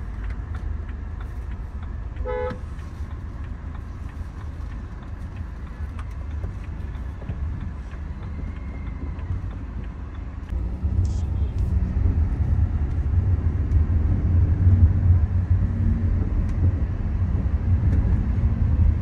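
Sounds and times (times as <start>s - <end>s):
car road and engine rumble: 0.0s - 19.0s
short car horn toot: 2.2s - 2.6s.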